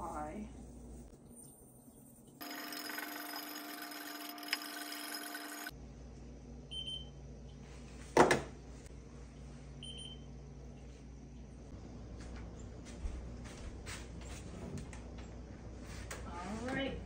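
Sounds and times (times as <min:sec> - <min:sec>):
steady hiss with low hum: 0:00.0 - 0:02.4
thermometer beep: 0:06.7 - 0:07.1, 0:09.8 - 0:10.2.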